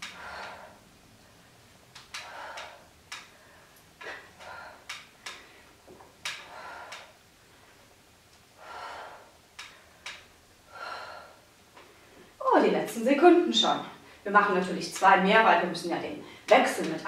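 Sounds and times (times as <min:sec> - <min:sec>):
woman breathing hard: 0:00.0 - 0:07.8, 0:08.5 - 0:12.3.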